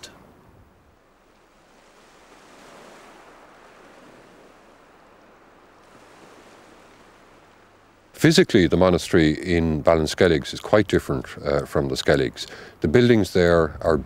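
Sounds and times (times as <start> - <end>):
waves washing on shore: 0.9 - 9.5.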